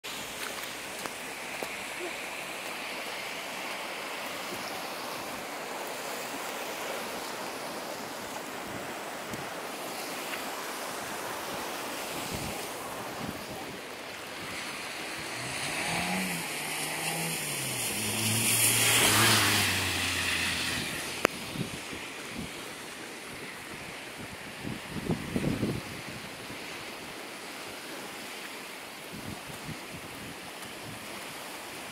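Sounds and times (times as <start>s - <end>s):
river floodwater rushing: 0.0s - 31.9s
motor vehicle passing: 14.4s - 21.8s.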